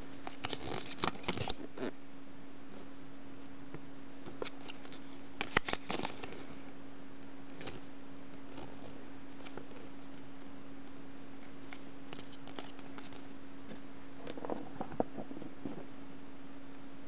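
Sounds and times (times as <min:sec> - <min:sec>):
steady low hum: 0:00.0 - 0:17.0
paper crackling and rustling: 0:00.2 - 0:01.8, 0:04.3 - 0:06.7, 0:07.5 - 0:10.2, 0:11.4 - 0:13.4.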